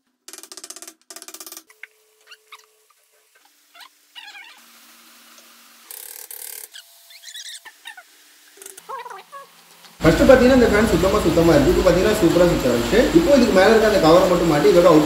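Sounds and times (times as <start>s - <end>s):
short squeaky calls: 2.2s - 4.7s, 5.9s - 9.5s.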